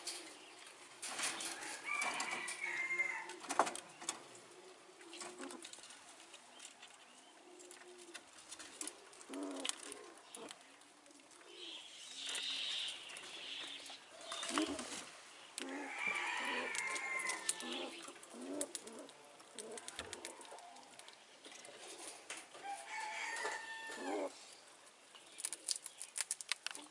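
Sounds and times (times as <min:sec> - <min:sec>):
rooster crowing: 0:01.6 - 0:03.3, 0:15.7 - 0:17.8, 0:22.6 - 0:24.3
low cooing: 0:23.2 - 0:24.4
small clicks: 0:25.4 - 0:26.9.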